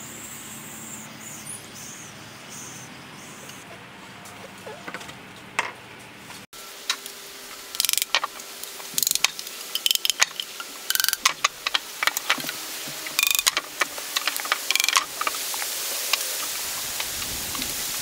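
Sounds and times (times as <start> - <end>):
plastic pipes clicking and knocking: 7.8 - 8.3, 9.0 - 12.6, 13.2 - 15.4.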